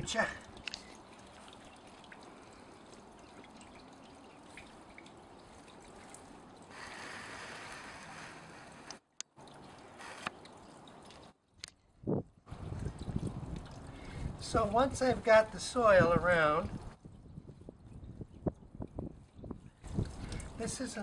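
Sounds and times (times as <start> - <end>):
soil scraping and trickling: 5.8 - 9.1, 9.8 - 10.5.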